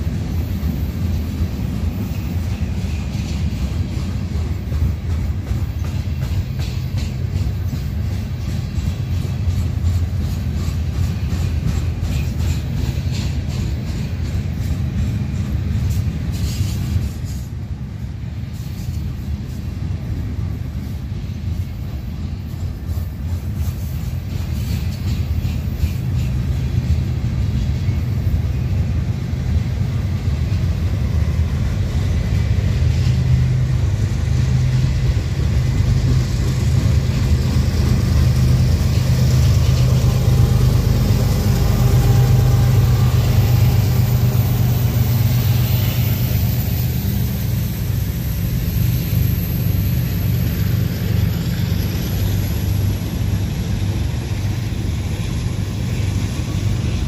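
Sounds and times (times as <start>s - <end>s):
freight train cars rumbling: 0.0s - 57.0s.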